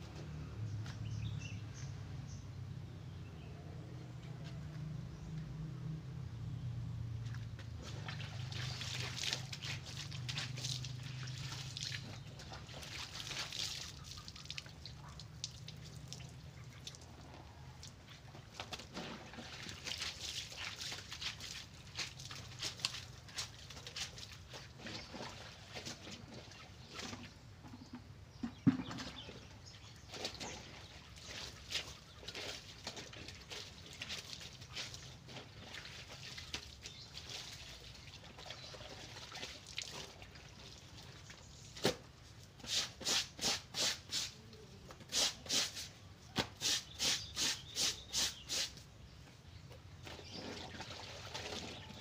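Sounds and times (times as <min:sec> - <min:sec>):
water splashing in plastic basin: 0:07.4 - 0:27.4, 0:28.4 - 0:44.3, 0:50.0 - 0:52.0.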